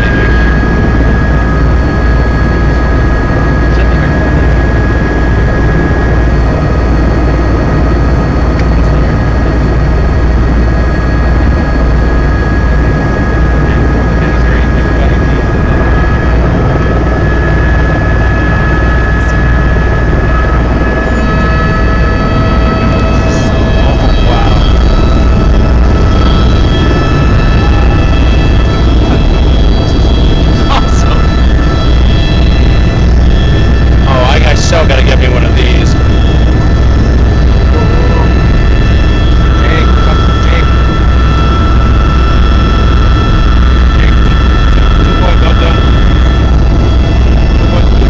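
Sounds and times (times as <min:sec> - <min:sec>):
helicopter engine and rotor rumble: 0:00.0 - 0:48.0
high whine: 0:00.0 - 0:48.0.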